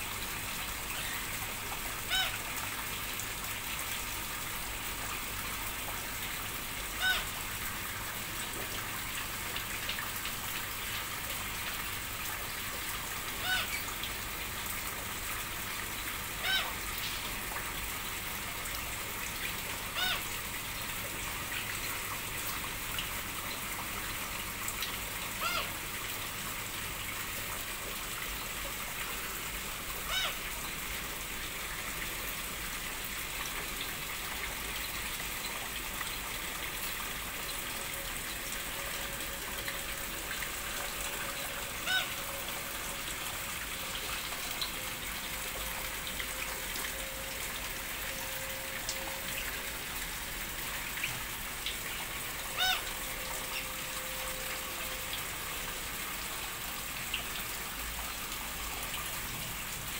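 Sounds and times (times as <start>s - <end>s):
waterfall pouring into pond: 0.0s - 59.9s
short pitched bird calls: 52.6s - 52.8s.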